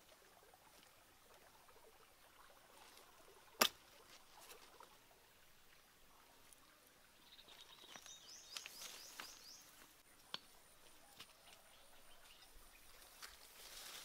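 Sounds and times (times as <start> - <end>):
bird chirping: 7.1 - 13.1
leaves rustling and clicking: 7.5 - 14.0.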